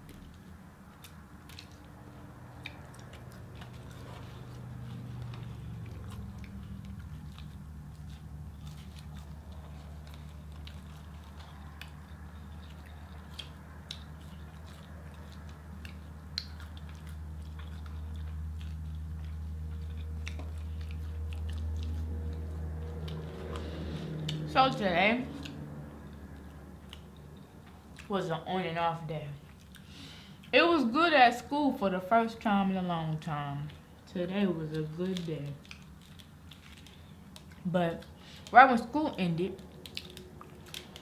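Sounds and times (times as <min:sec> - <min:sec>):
people chewing food: 0:00.0 - 0:30.6, 0:32.8 - 0:41.0
low steady hum: 0:00.0 - 0:41.0
wet mouth clicks and smacks: 0:01.0 - 0:03.9, 0:04.6 - 0:24.5, 0:39.6 - 0:41.0.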